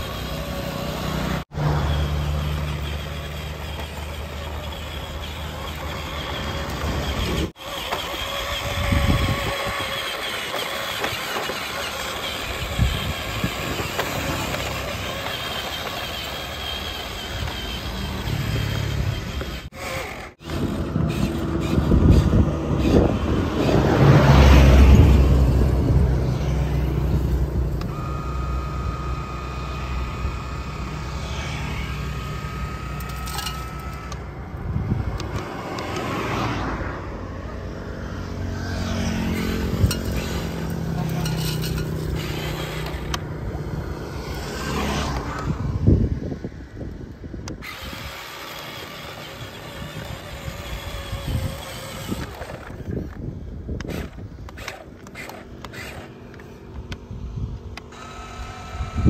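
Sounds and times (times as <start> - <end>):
toy excavator motor drone: 0.0 - 59.0
thin steady whine: 26.3 - 35.6.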